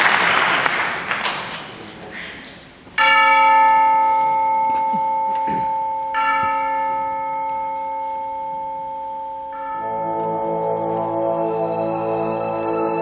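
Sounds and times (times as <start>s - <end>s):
church bell tolling: 3.0s - 11.5s
orchestra low held chord: 9.0s - 13.0s.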